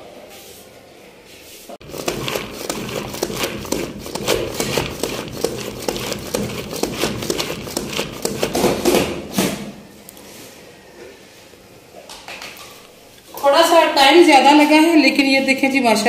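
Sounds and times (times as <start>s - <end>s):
hand food chopper chopping: 1.8s - 9.2s.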